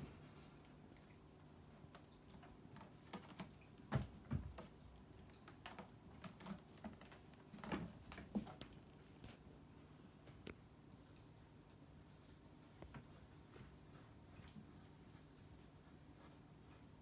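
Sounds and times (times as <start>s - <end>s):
cat claws clicking and scratching: 1.7s - 8.7s.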